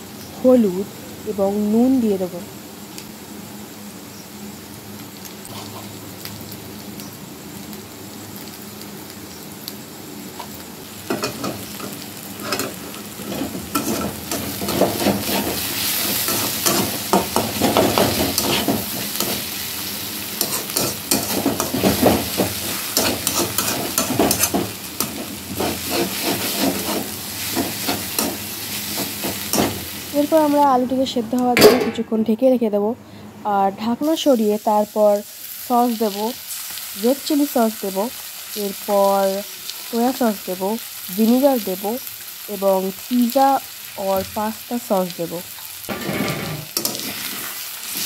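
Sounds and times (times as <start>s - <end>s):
food sizzling: 0.0s - 32.2s, 33.5s - 48.0s
metal spatula scraping a wok: 5.5s - 5.9s, 12.4s - 19.6s, 20.4s - 29.8s, 45.9s - 48.0s.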